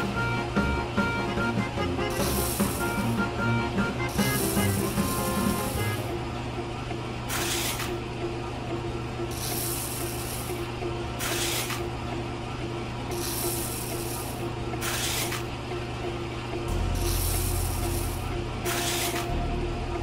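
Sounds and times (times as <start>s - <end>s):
small electric motor humming: 1.9s - 6.2s, 13.1s - 15.5s, 16.7s - 19.6s
sand hissing through mesh: 2.1s - 3.2s, 4.1s - 6.0s, 16.9s - 19.2s.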